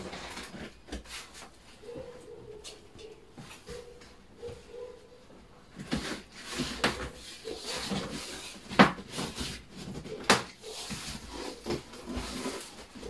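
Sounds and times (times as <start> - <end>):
cardboard flaps scraping: 0.0 - 1.6, 5.8 - 13.0
cardboard rustling: 5.7 - 13.0.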